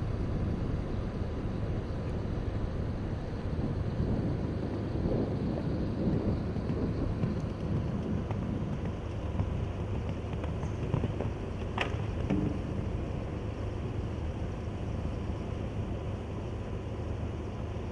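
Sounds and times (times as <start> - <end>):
low outdoor rumble: 0.0 - 17.9.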